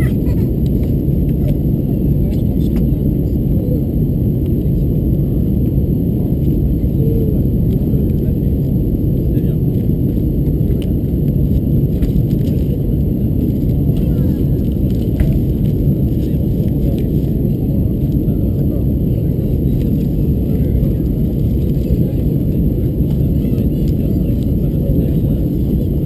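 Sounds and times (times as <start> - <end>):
airplane cabin roar: 0.0 - 26.0.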